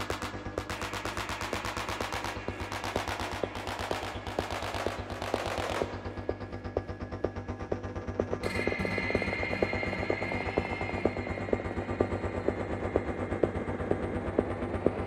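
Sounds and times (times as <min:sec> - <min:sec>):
electronic music with clicking pulse: 0:00.0 - 0:15.0
low drone: 0:00.0 - 0:15.0.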